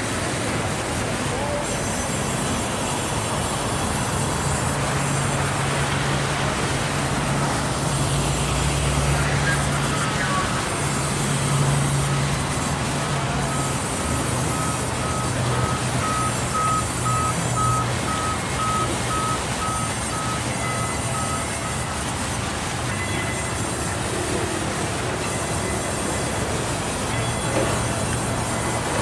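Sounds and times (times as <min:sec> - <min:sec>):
sawmill machine hum: 0:00.0 - 0:29.0
high electronic beeps: 0:13.4 - 0:22.0.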